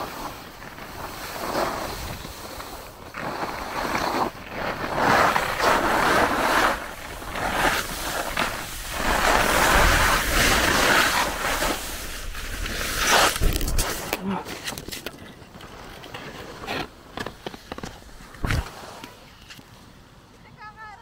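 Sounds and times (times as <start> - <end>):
skis scraping over snow: 0.0 - 19.6.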